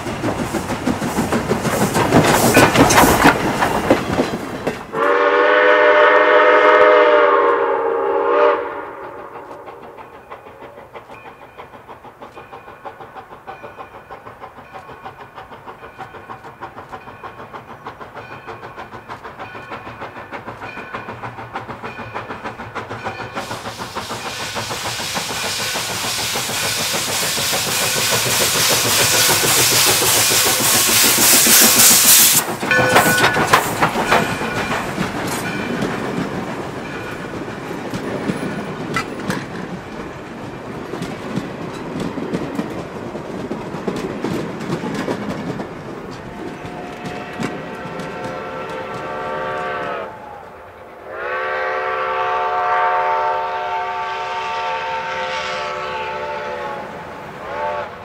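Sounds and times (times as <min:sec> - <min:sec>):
steam hissing: 0:00.0 - 0:04.2, 0:04.9 - 0:56.5
wheels clicking over rail joints: 0:00.0 - 0:05.1, 0:09.0 - 0:50.0
steam locomotive chuffing: 0:00.0 - 0:58.0
metal clanks: 0:32.6 - 0:36.0.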